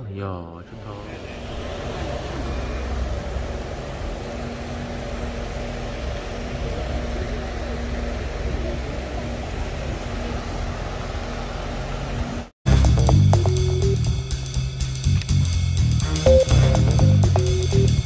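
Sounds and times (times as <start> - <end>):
outdoor background noise: 0.8 - 12.5.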